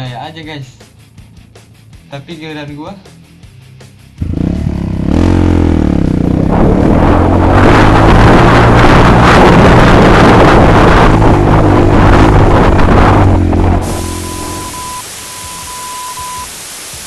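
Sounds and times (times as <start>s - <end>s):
motorcycle engine revving: 3.9s - 15.0s
wind rushing on microphone: 6.3s - 14.9s.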